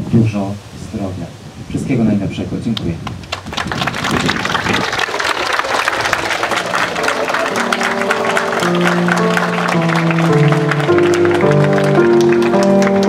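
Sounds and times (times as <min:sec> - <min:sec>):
audience applauding: 0:03.0 - 0:13.0
music with long held notes: 0:06.1 - 0:13.0.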